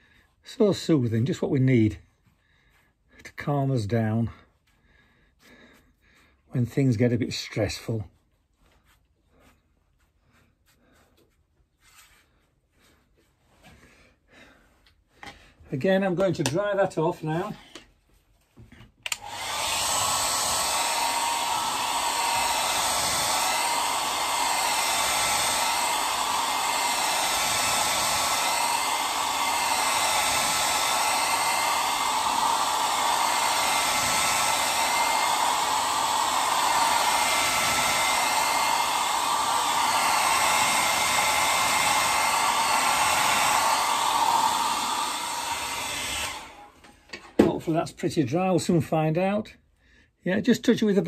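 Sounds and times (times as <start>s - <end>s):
hair dryer blowing: 16.0s - 17.8s, 19.0s - 47.8s.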